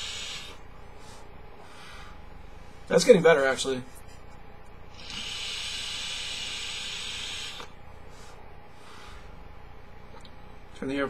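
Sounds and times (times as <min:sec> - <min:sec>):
vape coil hissing: 0:00.0 - 0:00.6, 0:05.0 - 0:07.8
soft breath out: 0:08.0 - 0:09.4.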